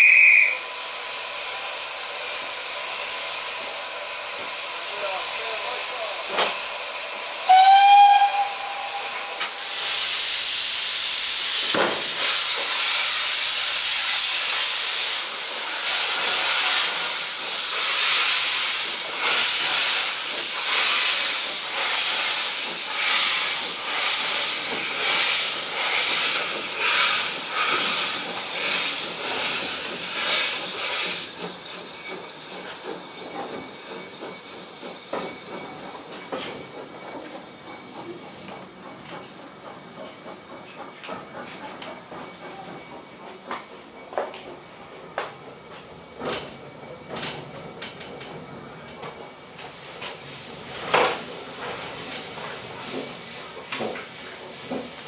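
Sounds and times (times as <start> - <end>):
steam locomotive whistle: 0.0 - 0.7, 7.4 - 9.8
steam hissing: 0.0 - 55.0.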